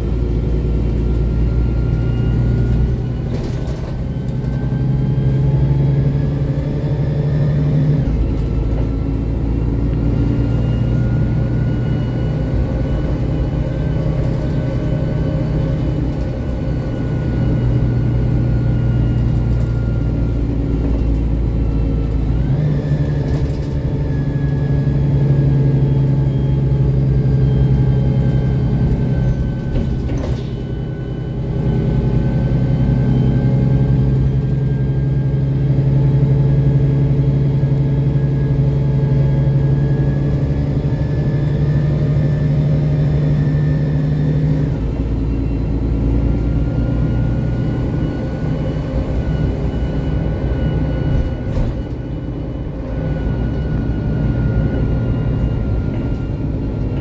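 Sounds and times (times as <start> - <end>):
bus diesel engine drone: 0.0 - 57.0
faint gliding whine: 30.7 - 57.0.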